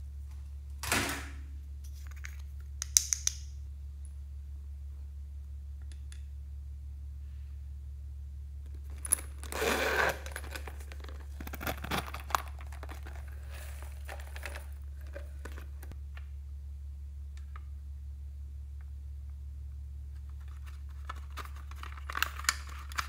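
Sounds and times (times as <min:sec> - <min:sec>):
low steady hum: 0:00.0 - 0:23.0
pouch rustling: 0:08.9 - 0:15.9
pouch clicks and clinks: 0:08.9 - 0:16.0, 0:20.9 - 0:23.0.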